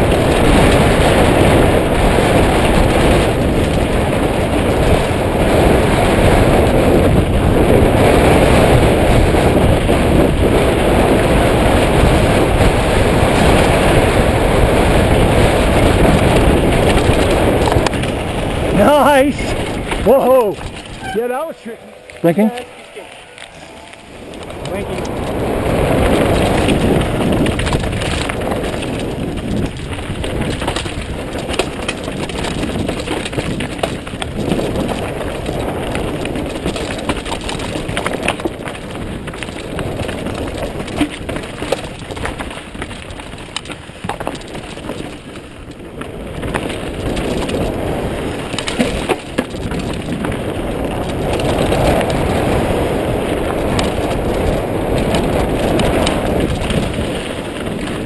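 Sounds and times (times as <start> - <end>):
bike knocking and rattling: 0.0 - 58.0
wind on microphone: 0.0 - 58.0
tyres crunching over rocks: 15.4 - 21.3, 21.9 - 58.0.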